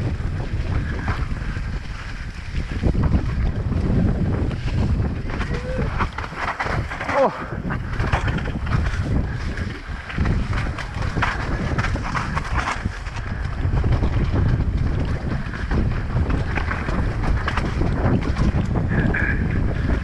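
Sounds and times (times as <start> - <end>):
bike knocking and rattling on rock: 0.0 - 20.0
low rumble: 0.0 - 20.0
wind buffeting microphone: 0.0 - 20.0.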